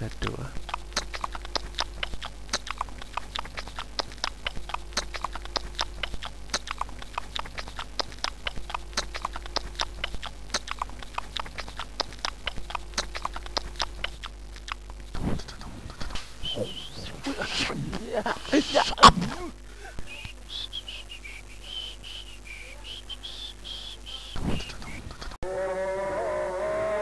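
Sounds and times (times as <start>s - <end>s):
steady low hum: 0.0s - 25.4s
faint held background tones: 0.0s - 27.0s
rapid irregular clicking: 0.6s - 16.2s.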